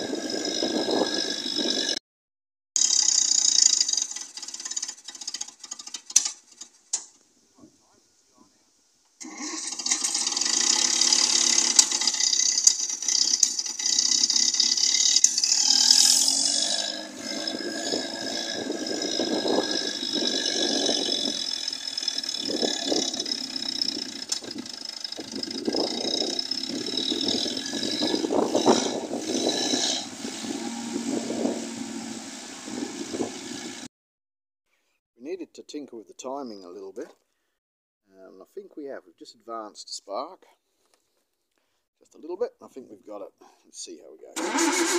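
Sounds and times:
petrol engine running roughly: 2.8 - 6.7, 9.2 - 33.9, 44.4 - 44.9.

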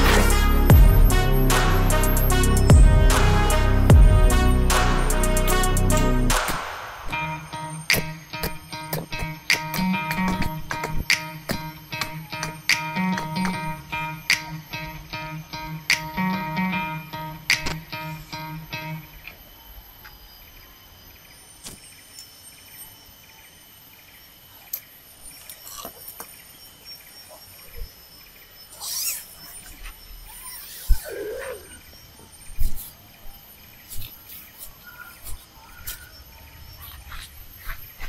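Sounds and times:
insects droning: 0.0 - 38.0
sliding animal call: 28.7 - 31.9
pulsed animal call: 28.7 - 32.3.

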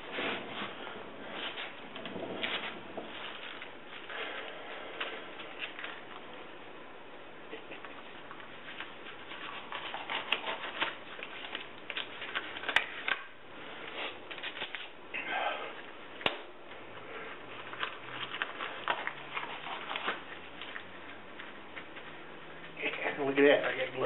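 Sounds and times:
rubber gloves crinkling and snapping: 0.0 - 6.7, 7.5 - 15.2, 15.8 - 24.0.

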